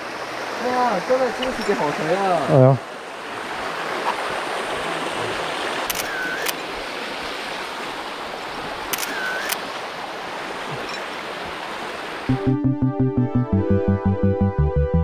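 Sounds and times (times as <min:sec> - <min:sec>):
stream water over rocks: 0:00.0 - 0:12.3
camera shutter clicks: 0:05.9 - 0:06.6, 0:08.9 - 0:09.6.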